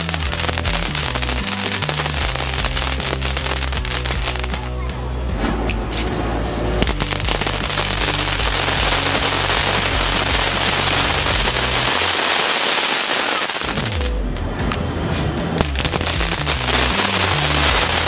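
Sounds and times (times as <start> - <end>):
fountain firework hissing: 0.0 - 4.6, 6.8 - 14.1, 15.6 - 18.0
crackling star bursts: 0.0 - 4.7, 6.8 - 14.6, 15.6 - 18.0.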